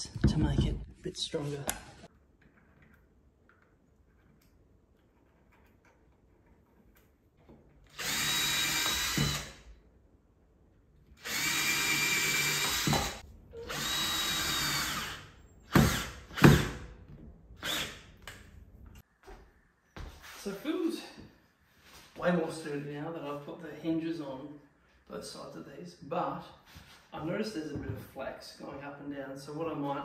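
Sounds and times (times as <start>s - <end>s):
cordless drill boring into wood: 7.9s - 9.7s, 11.2s - 16.9s, 17.6s - 18.1s.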